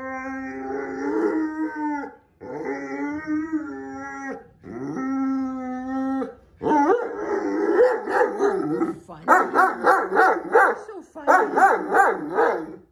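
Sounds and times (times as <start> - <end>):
dog howling: 0.0 - 10.6
dog barking: 6.8 - 12.9.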